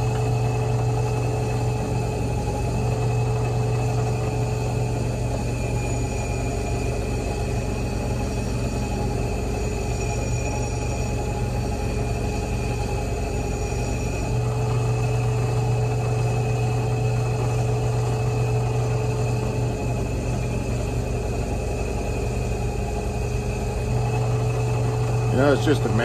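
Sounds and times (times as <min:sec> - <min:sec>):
wire wheel brush spinning: 0:00.0 - 0:11.4
drill press motor humming: 0:00.0 - 0:26.0.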